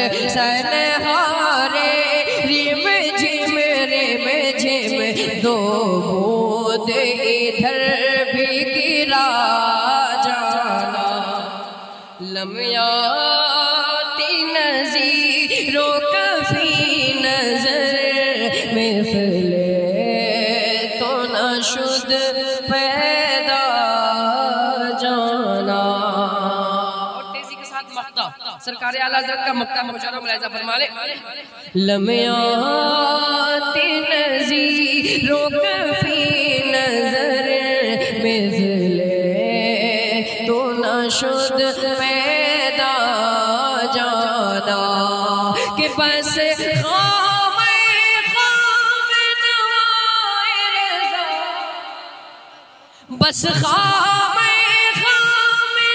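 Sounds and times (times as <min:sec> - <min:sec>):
man singing: 0:00.0 - 0:11.5, 0:31.8 - 0:48.4, 0:53.2 - 0:55.9
man chanting melodically: 0:00.0 - 0:48.5, 0:53.2 - 0:55.9.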